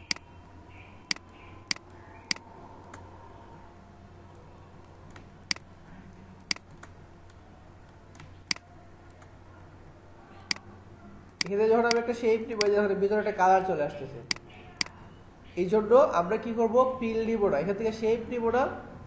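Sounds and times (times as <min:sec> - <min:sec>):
computer mouse button clicking: 0:00.0 - 0:00.2
faint steady low hum: 0:00.0 - 0:19.0.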